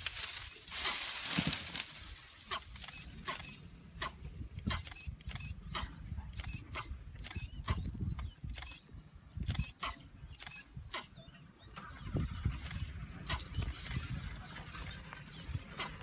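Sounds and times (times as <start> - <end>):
rustling noise: 0.0 - 3.0.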